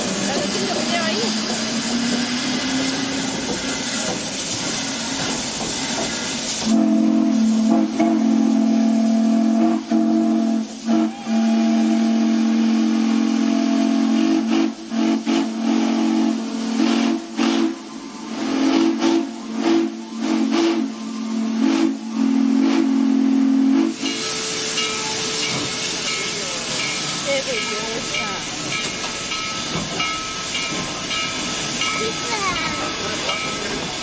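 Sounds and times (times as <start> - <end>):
hiss of escaping steam: 0.0 - 34.0
steam locomotive whistle: 6.0 - 28.5.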